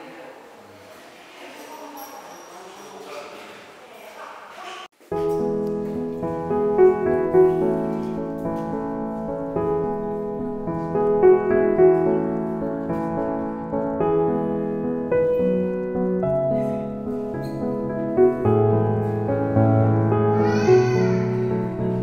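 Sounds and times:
piano music: 5.0 - 22.0.

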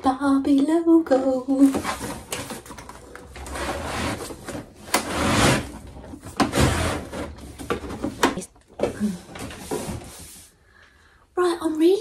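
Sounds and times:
cardboard scraping and rustling: 1.7 - 8.4, 9.2 - 10.5.

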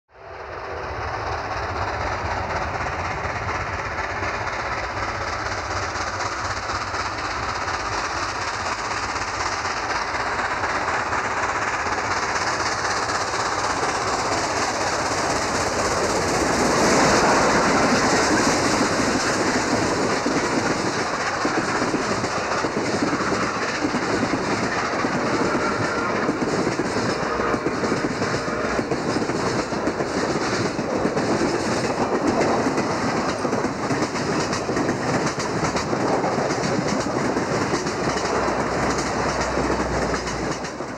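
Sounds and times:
steam locomotive passing: 0.1 - 40.9
train wheels clacking on rails: 0.2 - 40.9.

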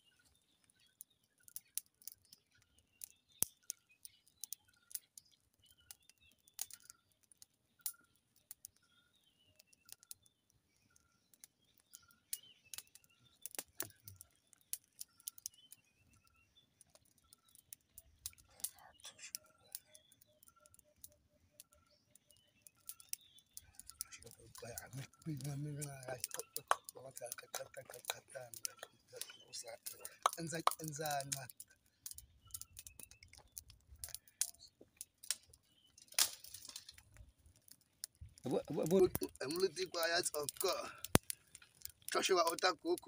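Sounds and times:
birds chirping: 0.0 - 43.0
twig fire crackling: 0.0 - 43.0.

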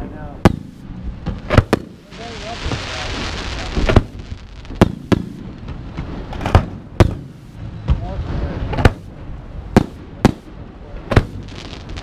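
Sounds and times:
firework hiss: 0.7 - 6.5, 11.1 - 12.0.

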